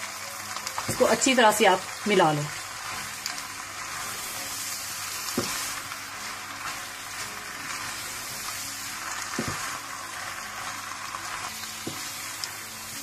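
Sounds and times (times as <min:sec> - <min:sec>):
pasta sizzling in a pan: 0:00.0 - 0:13.0.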